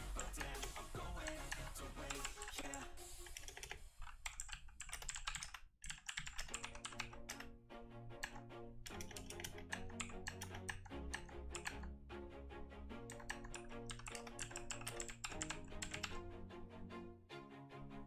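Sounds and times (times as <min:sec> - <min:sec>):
background music: 0:00.0 - 0:04.0, 0:06.4 - 0:18.0
keyboard typing: 0:00.0 - 0:07.5, 0:08.2 - 0:11.9, 0:13.0 - 0:16.2.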